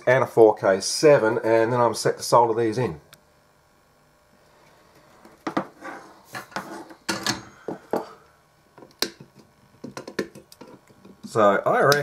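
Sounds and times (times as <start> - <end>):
soldering clicks and taps: 8.8 - 11.3.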